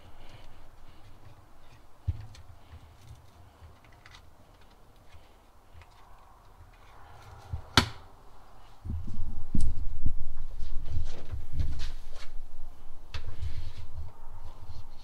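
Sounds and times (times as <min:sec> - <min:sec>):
cable rustling: 0:00.0 - 0:07.7.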